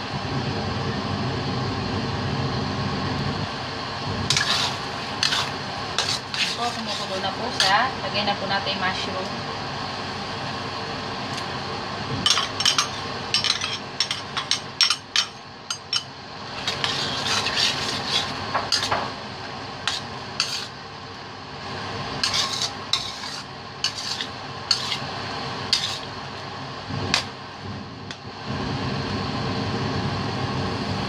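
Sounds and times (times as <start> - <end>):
sauce simmering hiss: 0.0 - 8.6, 16.2 - 31.0
metal spoon scraping a pan: 4.3 - 7.8, 12.3 - 19.1, 19.8 - 20.8, 22.2 - 25.1, 25.7 - 26.1.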